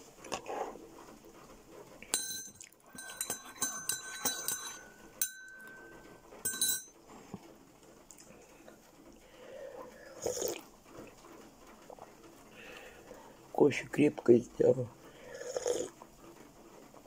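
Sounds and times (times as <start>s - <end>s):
spoon clinking against a mug: 2.1s - 7.0s.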